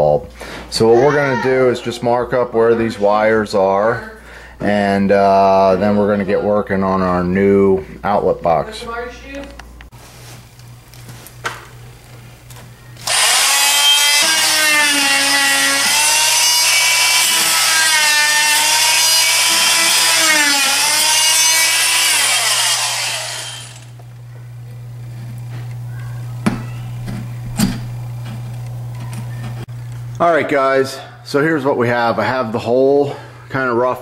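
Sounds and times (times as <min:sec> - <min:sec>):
power tool cutting drywall: 0:13.0 - 0:24.0.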